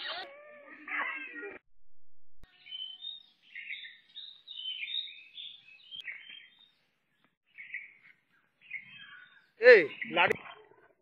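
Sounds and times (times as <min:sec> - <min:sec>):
birds chirping: 0:02.4 - 0:11.0.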